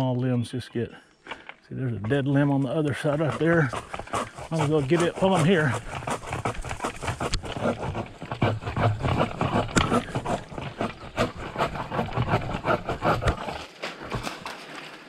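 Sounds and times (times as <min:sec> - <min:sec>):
pole saw cutting branches: 0:02.6 - 0:15.0.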